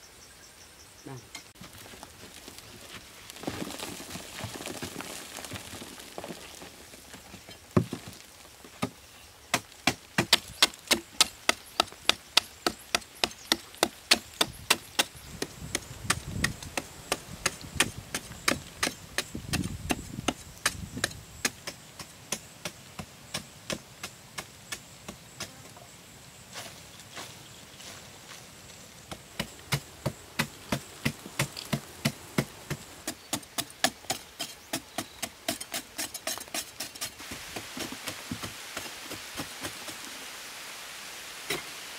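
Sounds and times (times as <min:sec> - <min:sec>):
digging tool chipping hard earth: 0:08.8 - 0:25.5, 0:29.1 - 0:39.9.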